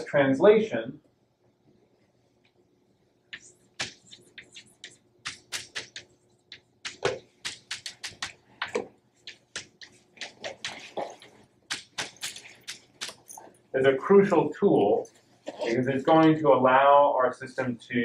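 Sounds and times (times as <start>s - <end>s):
chalk writing on blackboard: 3.3s - 8.4s.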